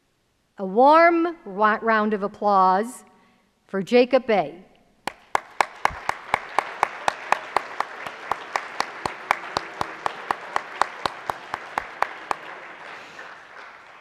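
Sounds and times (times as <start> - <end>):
loud even handclaps: 5.0 - 14.0
audience applauding: 5.1 - 14.0.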